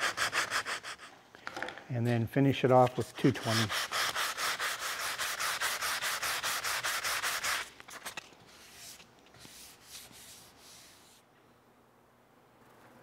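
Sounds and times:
sandpaper sanding wood: 0.0 - 1.1, 3.0 - 7.7, 8.5 - 11.2
hand rubbing wood: 2.8 - 11.3.

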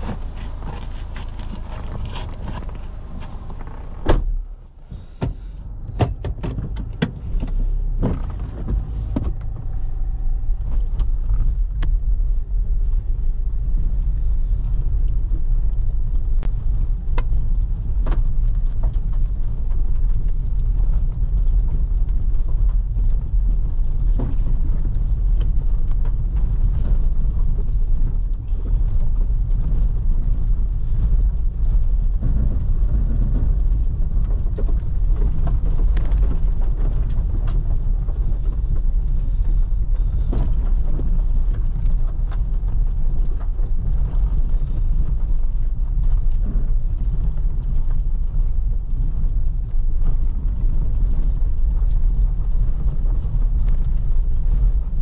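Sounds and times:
sharp clicks and knocks: 0.0 - 9.8
car driving rumble: 0.0 - 55.0.

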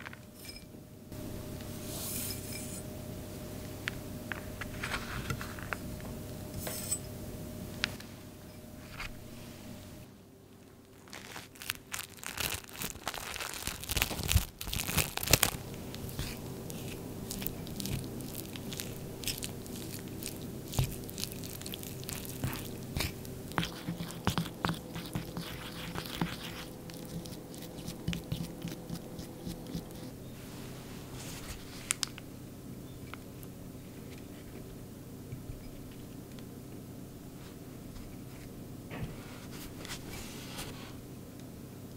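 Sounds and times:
wooden spoon scraping ceramic bowl: 15.8 - 30.1.

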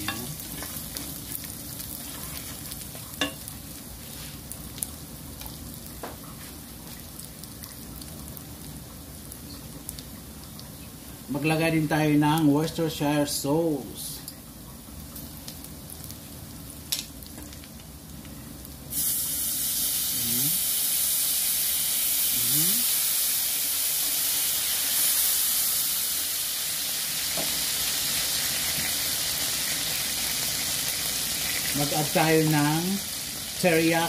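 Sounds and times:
meat sizzling in a pan: 0.0 - 10.5, 18.6 - 34.0.

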